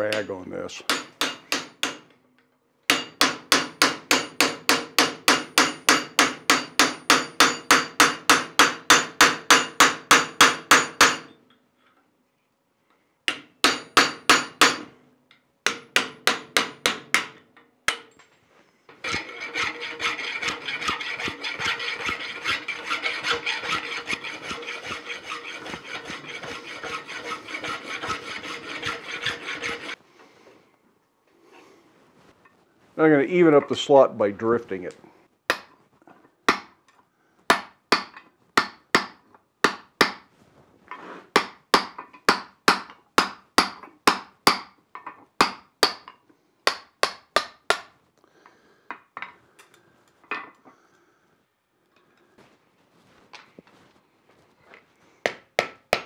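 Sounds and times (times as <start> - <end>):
hammer striking cold chisel: 0.0 - 2.1, 2.9 - 11.4, 13.3 - 14.9, 15.7 - 18.2, 19.0 - 30.0, 35.5 - 35.7, 36.5 - 36.8, 37.5 - 40.3, 41.4 - 44.8, 45.4 - 47.9, 55.3 - 56.0
file rasping on steel: 18.9 - 30.0.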